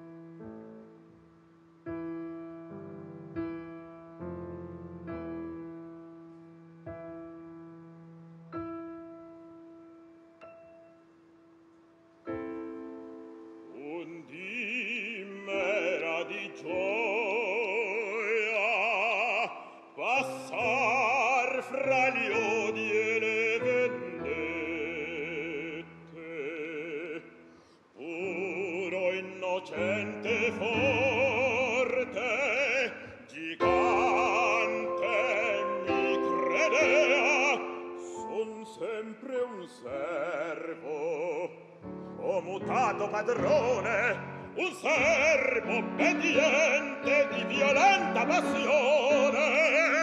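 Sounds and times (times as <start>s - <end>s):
piano accompaniment: 0.0s - 50.0s
operatic male singing: 13.7s - 50.0s.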